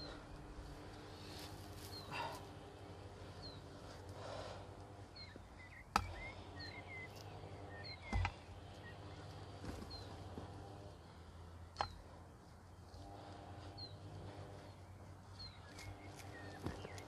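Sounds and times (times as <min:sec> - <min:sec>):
rustling of soil and plants: 0:00.0 - 0:17.0
small bird chirping: 0:05.1 - 0:10.2, 0:13.7 - 0:17.0.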